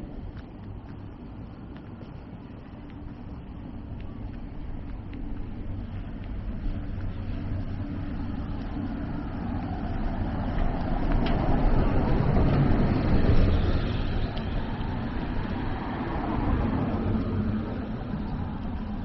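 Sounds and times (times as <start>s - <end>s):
low traffic hum: 0.0s - 19.0s
vehicle passing by: 9.1s - 19.0s.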